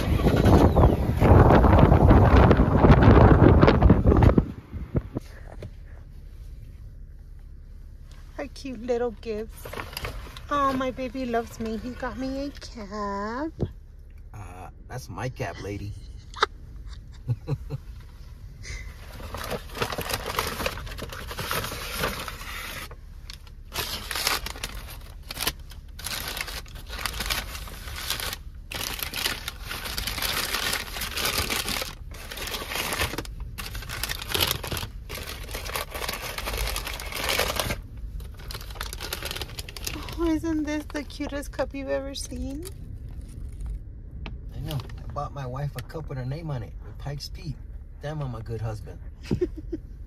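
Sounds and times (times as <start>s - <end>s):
rustling crinkling: 0.0s - 12.8s, 18.1s - 41.5s
low steady hum: 0.0s - 50.0s.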